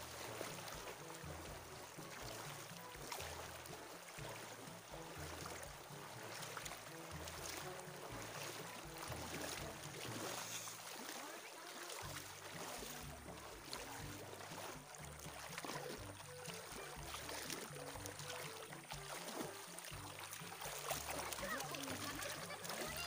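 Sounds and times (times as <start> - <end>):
people wading through river water: 0.0 - 23.0.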